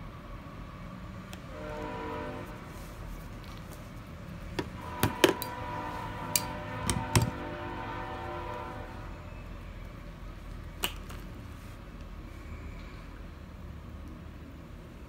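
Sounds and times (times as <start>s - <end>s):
steady hum: 0.0s - 15.0s
wire stripper clicking: 6.3s - 7.4s.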